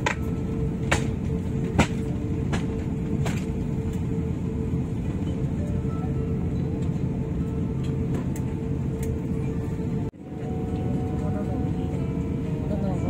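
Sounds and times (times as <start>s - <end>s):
airplane cabin rumble: 0.0s - 13.0s.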